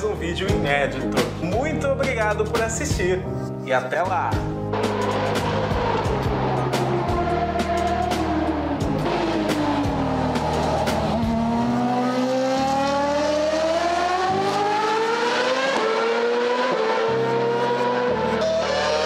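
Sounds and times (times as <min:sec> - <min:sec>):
racing car engine accelerating: 0:04.7 - 0:19.0.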